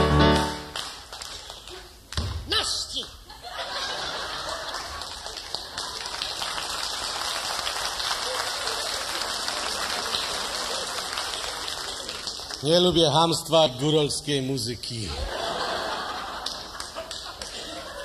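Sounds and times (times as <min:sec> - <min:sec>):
audience applauding: 0:00.2 - 0:02.0, 0:04.0 - 0:13.5, 0:15.6 - 0:18.0.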